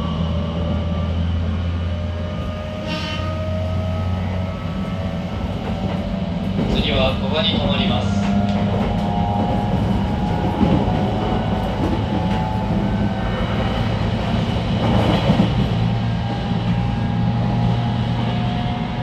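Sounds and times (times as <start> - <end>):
wheels rumbling on rail: 0.0 - 19.0
train motor whine: 7.8 - 19.0.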